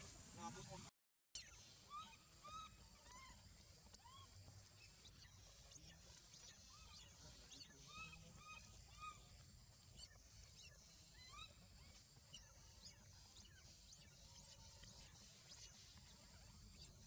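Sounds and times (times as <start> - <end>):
steady high hiss: 0.0 - 0.9.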